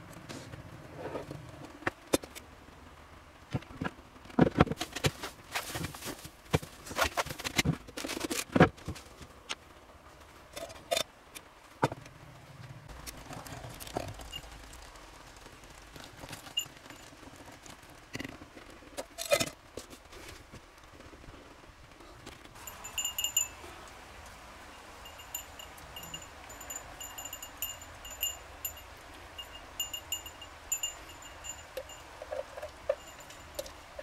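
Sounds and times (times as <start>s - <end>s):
bag rustling and clattering: 4.8s - 9.2s.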